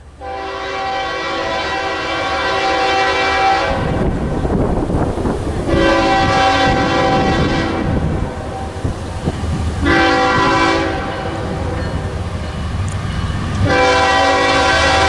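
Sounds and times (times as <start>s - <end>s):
diesel train rumble: 0.0s - 15.0s
locomotive air horn blasts: 0.2s - 4.2s, 5.7s - 8.8s, 9.8s - 11.8s, 13.6s - 15.0s.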